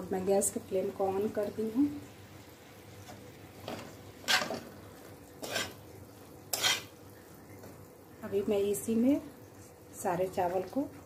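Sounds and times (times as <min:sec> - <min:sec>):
spatula scraping a wok: 0:03.7 - 0:04.7, 0:05.4 - 0:05.9, 0:06.5 - 0:07.0.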